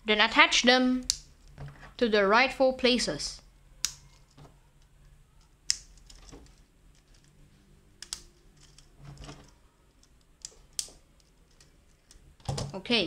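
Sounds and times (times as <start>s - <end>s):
plastic parts clicking: 3.8s - 7.4s, 8.0s - 12.7s
plastic pieces handling noise: 4.0s - 7.4s, 8.0s - 12.7s.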